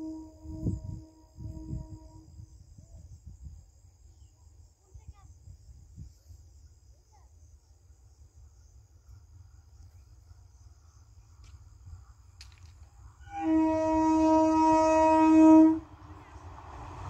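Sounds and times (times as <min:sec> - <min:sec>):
train horn blast: 0:00.0 - 0:02.5, 0:13.2 - 0:16.5.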